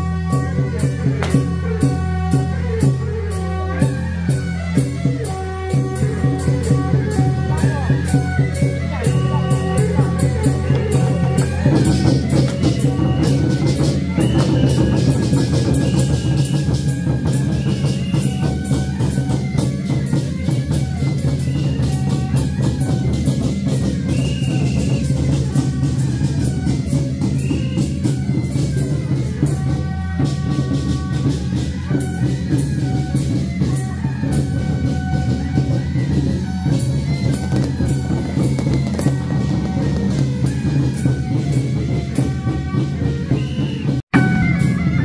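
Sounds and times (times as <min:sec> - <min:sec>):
procession music with drums: 0:00.0 - 0:45.0
firecrackers crackling: 0:00.1 - 0:03.8, 0:36.4 - 0:42.2
high melody line: 0:44.1 - 0:45.0.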